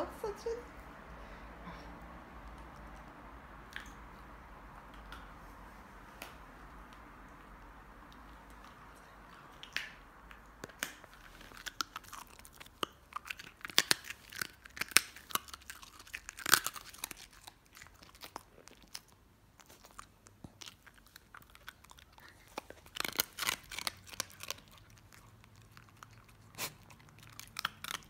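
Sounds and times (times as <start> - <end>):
dog crunching a treat: 8.1 - 28.0.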